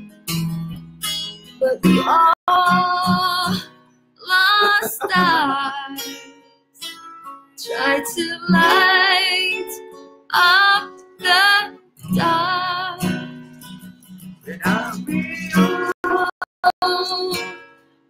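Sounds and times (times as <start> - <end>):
strummed acoustic guitar: 0.0 - 18.0
woman singing with vibrato: 1.6 - 6.2, 7.6 - 13.2, 15.2 - 17.5.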